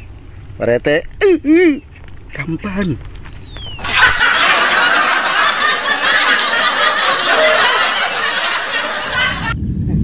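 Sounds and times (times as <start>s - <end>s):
crowd laughing: 3.8s - 9.6s.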